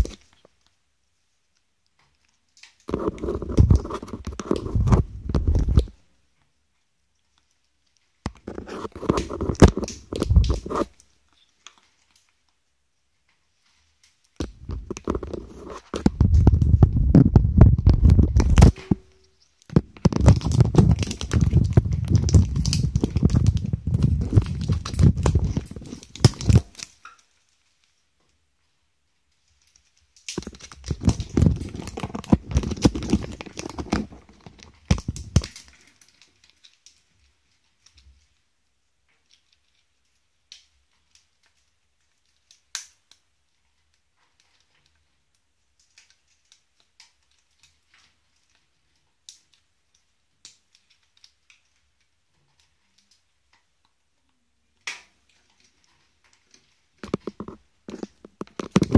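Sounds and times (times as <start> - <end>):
parrot scratching at tape: 2.9 - 6.0, 8.3 - 11.0, 14.4 - 19.0, 19.7 - 26.9, 30.3 - 35.8, 57.0 - 58.9.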